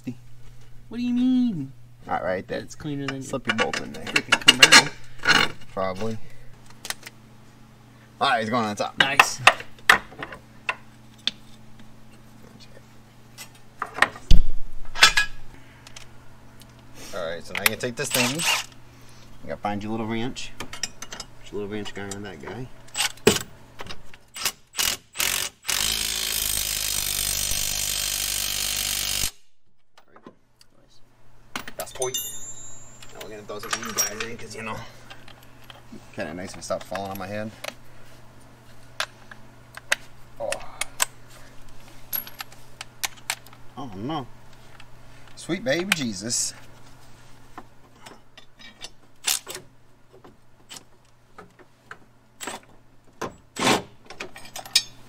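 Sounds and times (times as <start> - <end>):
power tool driving a bolt: 18.1 - 18.7, 24.3 - 29.4
impact wrench burst: 24.3 - 29.5
metal tools clicking and clinking: 31.6 - 34.5, 54.3 - 55.0.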